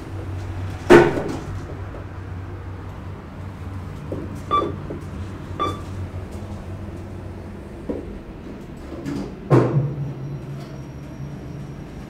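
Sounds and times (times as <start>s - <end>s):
elevator doors thudding shut: 0.0s - 2.7s, 4.0s - 12.0s
steady low hum: 0.0s - 9.5s
button press beeps: 4.5s - 4.8s, 5.6s - 5.9s.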